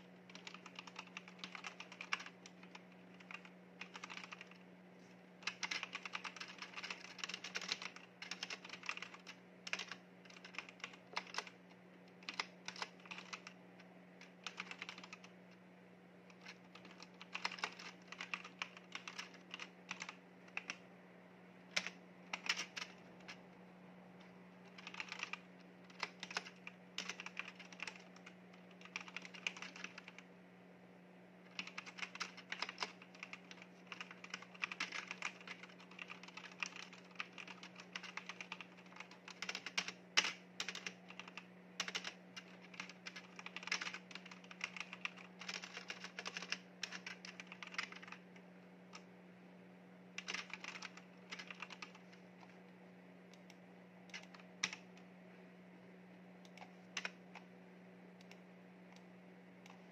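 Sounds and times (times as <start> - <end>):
faint steady low hum: 0.0 - 59.9.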